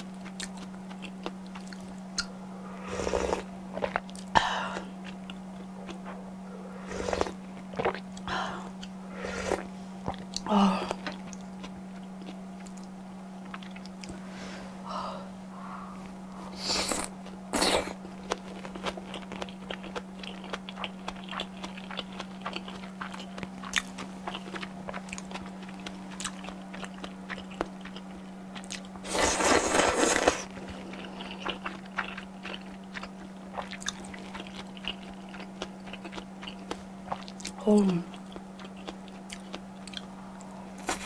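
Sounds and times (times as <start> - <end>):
close chewing mouth sounds: 0.2 - 2.3, 3.0 - 6.2, 6.9 - 14.2, 16.8 - 41.0
noodles slurping: 29.0 - 32.6.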